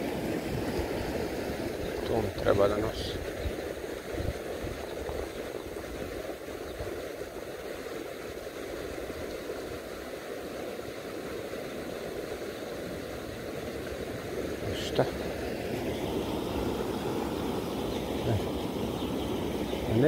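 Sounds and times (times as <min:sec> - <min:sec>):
river rushing: 0:00.0 - 0:04.6, 0:11.8 - 0:20.0.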